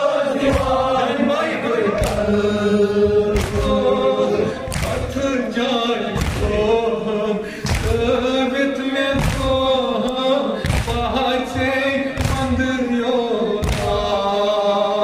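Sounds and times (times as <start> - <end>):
man singing into microphone: 0.0 - 15.0
men chanting: 0.0 - 15.0.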